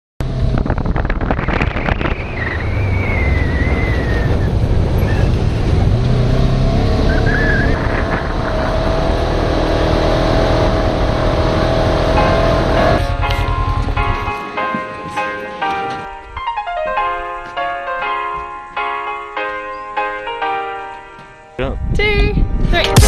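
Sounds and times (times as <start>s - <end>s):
vehicle engine drone: 0.2s - 16.0s.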